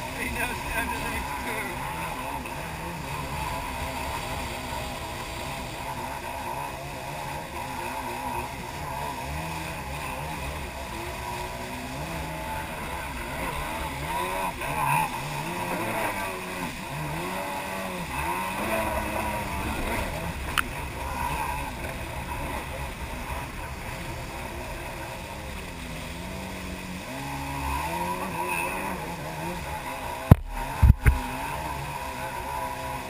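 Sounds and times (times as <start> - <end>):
jet ski engine: 0.0 - 33.0
rushing water: 0.0 - 33.0
wind noise: 30.3 - 31.2.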